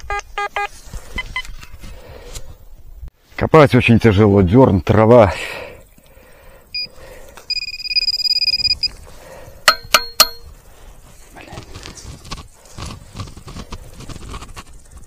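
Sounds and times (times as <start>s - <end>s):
metal detector target tone: 7.5s - 9.0s, 9.7s - 10.5s
digging in sod and grass: 8.5s - 15.0s
ringing metallic clinks: 9.7s - 10.5s.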